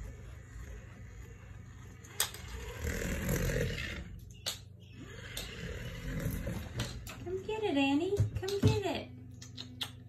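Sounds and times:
cat purring: 0.0s - 4.2s, 5.0s - 7.2s.

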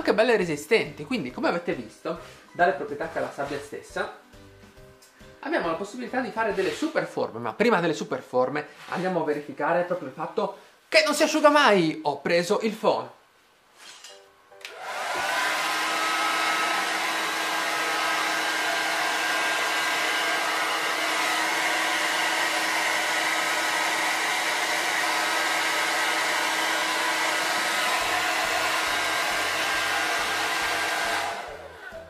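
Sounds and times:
hair dryer running: 14.6s - 32.0s.

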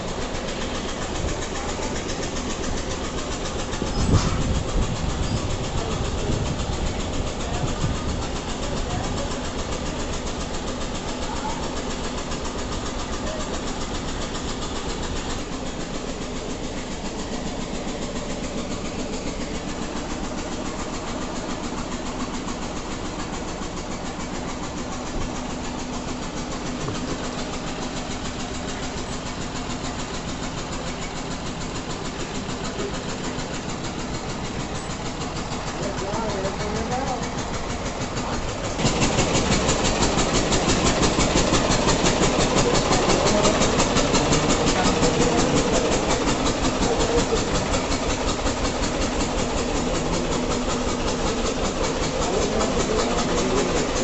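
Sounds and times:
engine running: 0.0s - 54.0s.

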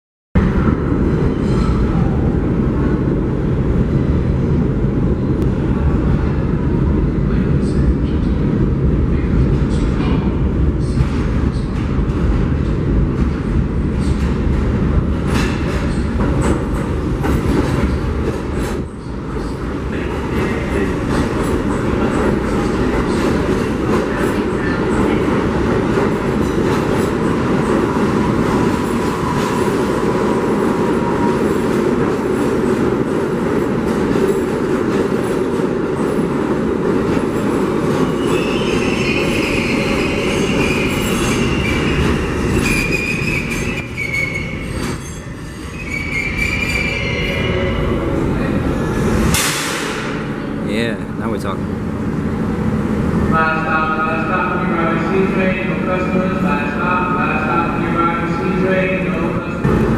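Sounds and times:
subway train rumbling: 0.4s - 59.9s
high metallic brake squeal: 38.2s - 42.0s, 42.6s - 47.9s.

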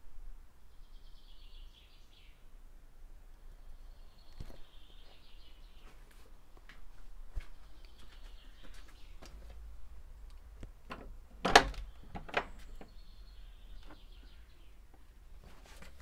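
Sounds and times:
small birds chirping: 0.6s - 2.5s, 3.2s - 10.8s, 11.7s - 16.0s
door latch clanking: 10.9s - 12.9s.

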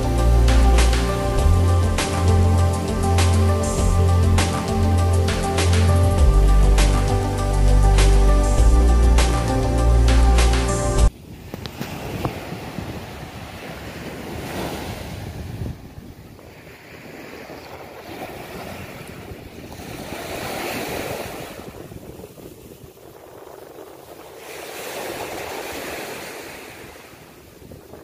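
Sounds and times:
wind rumble on microphone: 0.0s - 28.0s
sea waves breaking on beach: 11.1s - 28.0s.

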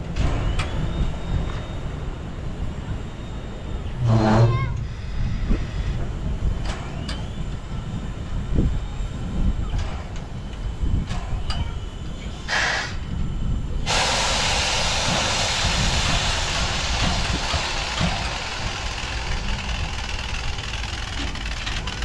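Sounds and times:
low rumble: 3.8s - 6.1s
steam locomotive hissing: 12.3s - 22.0s.

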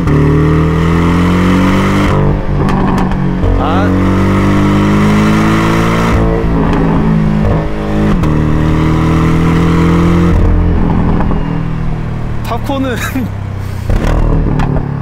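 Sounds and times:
car engine exhaust under hard driving: 0.0s - 15.0s
sharp exhaust crack: 13.6s - 14.8s.

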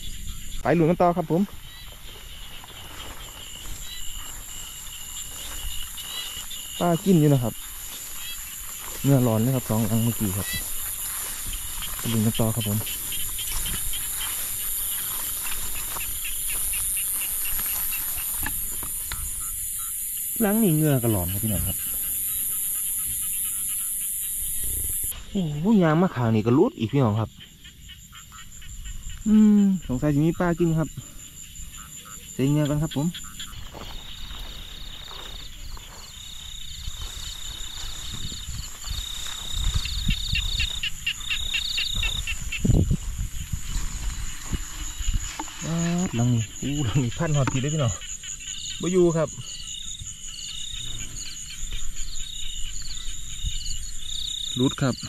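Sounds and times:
footsteps rustling grass: 0.0s - 25.1s, 31.3s - 47.7s, 50.1s - 54.6s
high-pitched insect drone: 0.0s - 55.0s
rapid pulsed chirps: 1.6s - 25.1s.

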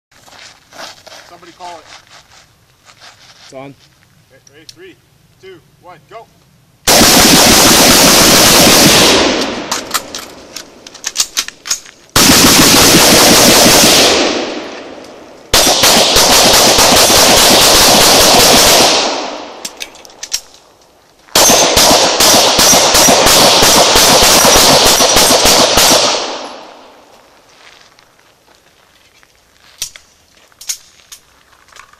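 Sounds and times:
rapid gunfire: 6.9s - 9.7s, 12.2s - 14.6s, 15.5s - 19.4s, 21.4s - 26.4s.

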